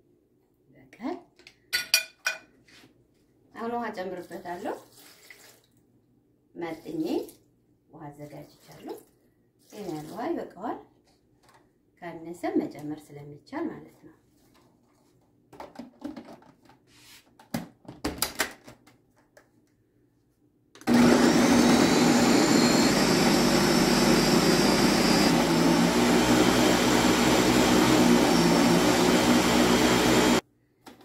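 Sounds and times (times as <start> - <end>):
blender motor running: 20.8 - 30.4.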